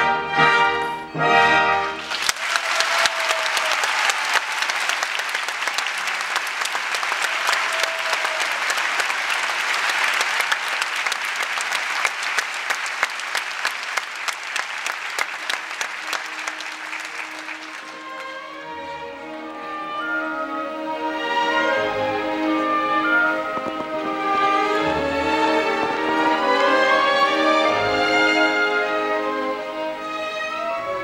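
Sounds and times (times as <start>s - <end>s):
audience applauding: 1.8s - 18.8s.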